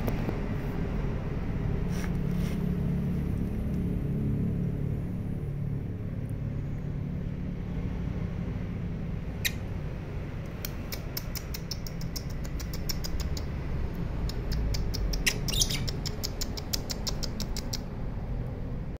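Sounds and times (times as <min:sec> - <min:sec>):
low steady rumble: 0:00.0 - 0:19.0
lovebirds chirping: 0:10.5 - 0:13.5, 0:14.3 - 0:17.9.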